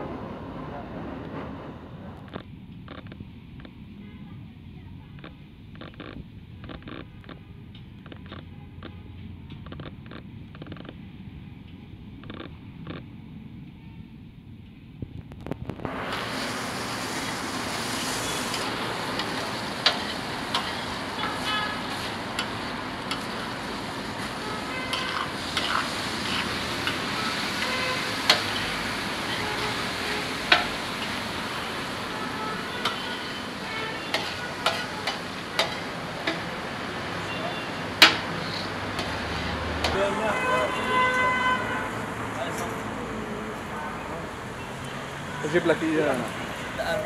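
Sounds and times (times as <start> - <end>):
minced meat sizzling in a pan: 15.8 - 39.9
metal spatula scraping a pan: 17.1 - 36.5, 37.9 - 40.0.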